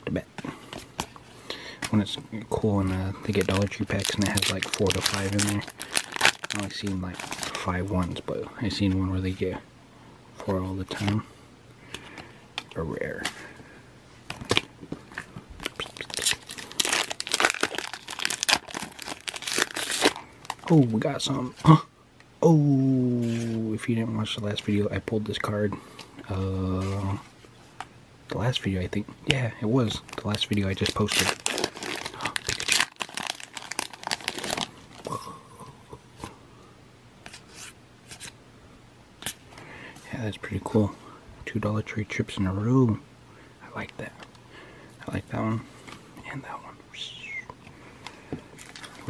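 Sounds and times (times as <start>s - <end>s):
foil wrapper crinkling: 2.8s - 7.9s, 15.6s - 20.8s, 29.9s - 35.1s, 48.6s - 49.0s.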